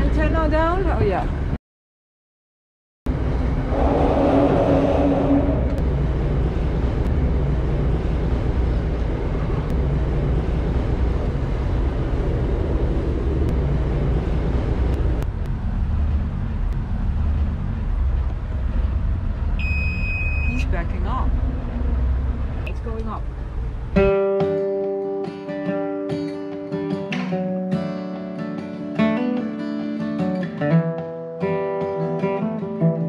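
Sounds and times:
boat engine drone: 3.1s - 19.8s.

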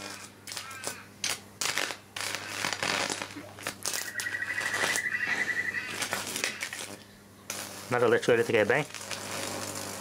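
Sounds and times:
electric arc crackling: 0.0s - 10.0s
high pulsing whine: 3.8s - 7.3s.

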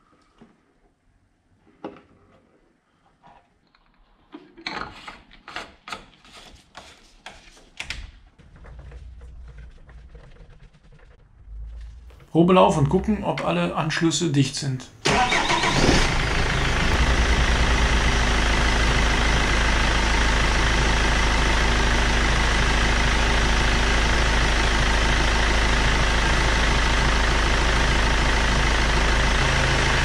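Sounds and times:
diesel engine idling: 8.4s - 14.0s, 15.0s - 30.0s.

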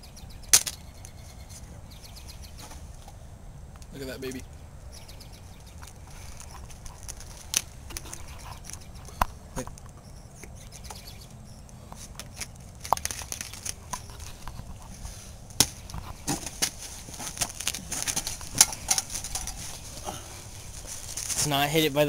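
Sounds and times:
steady low rumble: 0.0s - 22.0s
plastic bottle clicks and crinkles: 12.2s - 14.6s, 15.6s - 19.5s.

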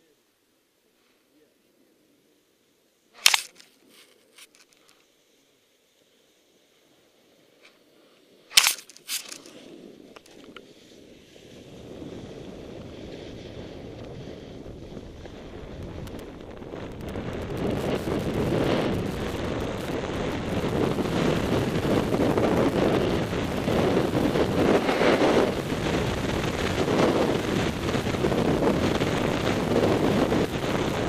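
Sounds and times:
snowboard sliding over snow: 1.8s - 31.0s
wind buffeting microphone: 9.3s - 31.0s.

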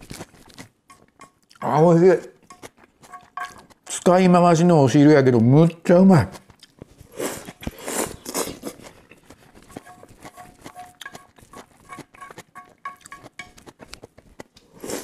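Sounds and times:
chewing: 0.0s - 1.8s, 2.4s - 4.0s, 6.3s - 15.0s
chopsticks scraping a frying pan: 2.5s - 3.7s, 9.7s - 13.7s
slurping: 6.6s - 15.0s
chopsticks tapping on a pan: 10.7s - 11.3s, 12.2s - 13.6s.

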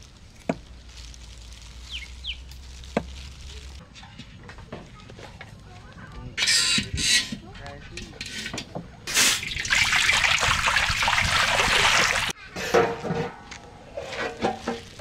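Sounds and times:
rustling: 0.0s - 8.5s, 12.8s - 15.0s
liquid rushing in a metal wok: 9.1s - 12.4s.

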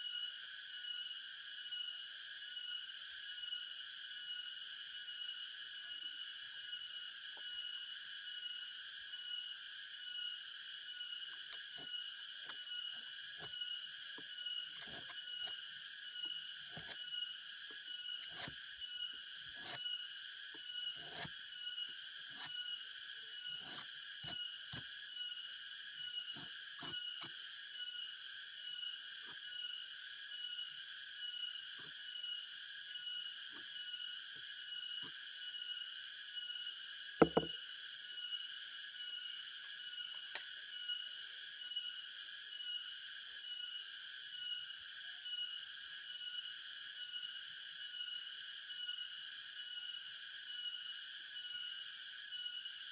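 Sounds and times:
high-pitched insect chorus: 0.0s - 52.9s
machete knocking and scraping stalk: 37.2s - 37.6s.

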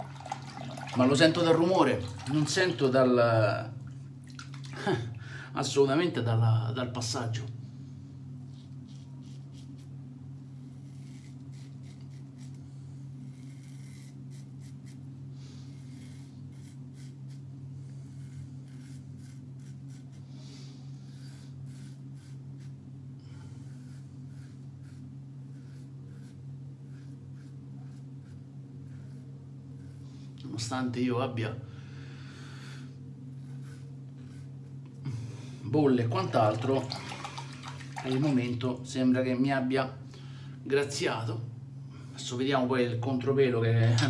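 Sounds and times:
steady low hum: 0.0s - 44.0s
razor scraping stubble: 8.5s - 9.9s, 10.6s - 12.6s, 13.2s - 20.3s, 21.0s - 22.9s, 23.6s - 30.0s, 33.3s - 34.8s.

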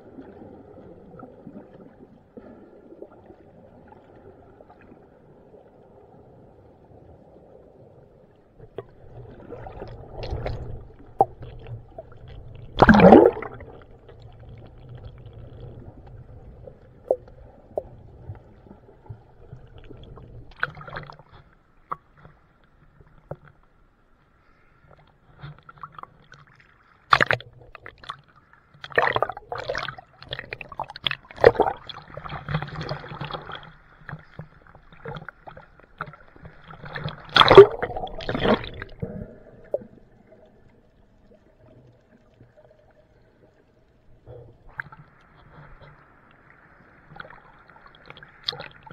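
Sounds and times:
water splashing: 8.8s - 18.0s, 25.8s - 43.6s, 44.6s - 48.9s
bubbling rushes: 9.0s - 14.0s, 28.9s - 33.6s, 36.7s - 40.0s.

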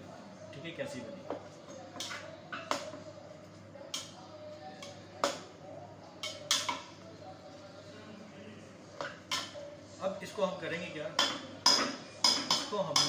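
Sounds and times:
metal spoon clinking pot: 11.2s - 13.0s.

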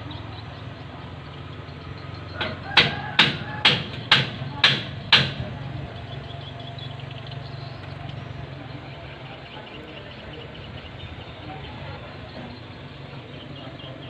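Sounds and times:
vehicle engine humming: 0.0s - 14.0s
sharp knock: 2.4s - 5.4s.

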